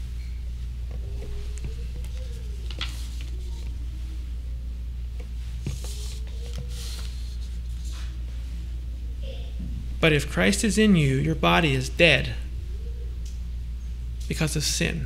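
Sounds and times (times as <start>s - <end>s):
electrical hum: 0.0s - 15.0s
paper rustling: 1.1s - 3.8s, 5.6s - 8.2s.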